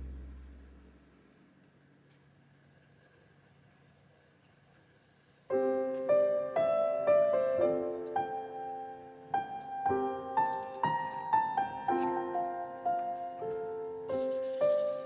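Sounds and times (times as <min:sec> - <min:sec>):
piano music with chords: 0:05.5 - 0:15.0.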